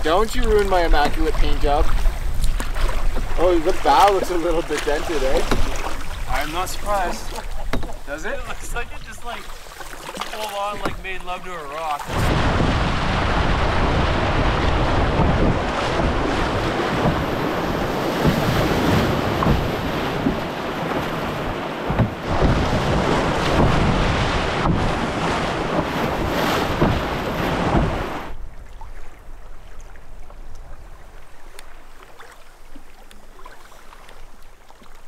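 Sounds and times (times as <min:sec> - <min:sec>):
waves splashing over canoe: 0:00.0 - 0:35.0
whitewater rapid rushing: 0:03.0 - 0:28.4.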